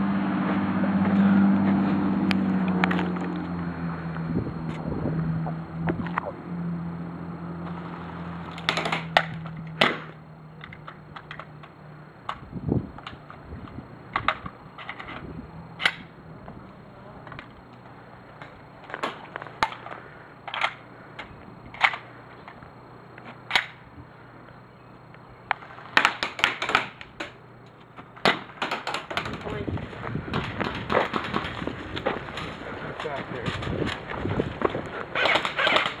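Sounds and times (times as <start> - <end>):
airsoft gun shots: 8.6 - 10.1, 35.2 - 36.0.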